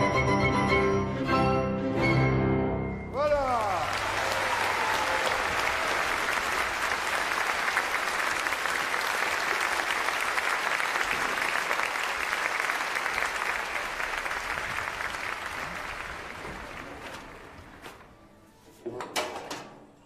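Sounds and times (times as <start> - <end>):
audience applauding: 3.4 - 17.8.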